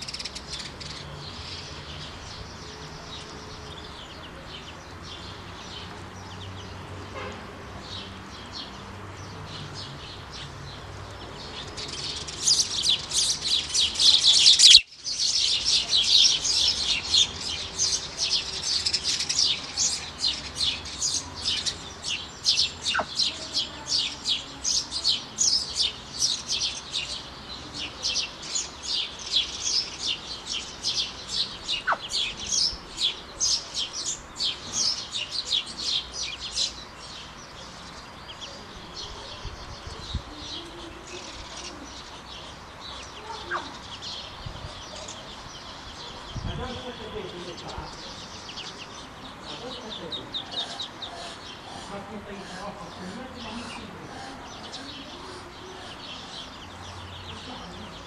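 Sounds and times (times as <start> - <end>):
ducklings peeping: 11.2 - 23.4, 27.8 - 36.8, 37.8 - 58.0.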